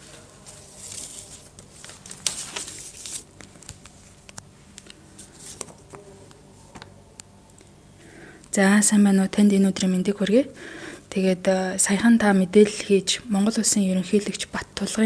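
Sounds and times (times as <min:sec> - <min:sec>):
soft rustling: 0:00.0 - 0:06.0
faint low hum: 0:00.0 - 0:15.0.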